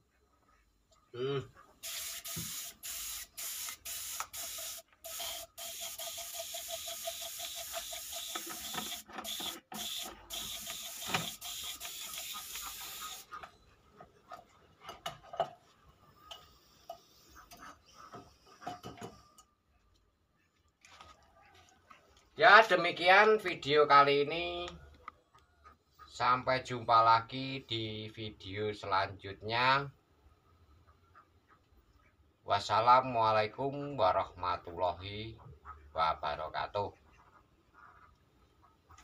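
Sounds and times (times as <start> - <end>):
paint spray gun hissing: 1.8 - 13.4.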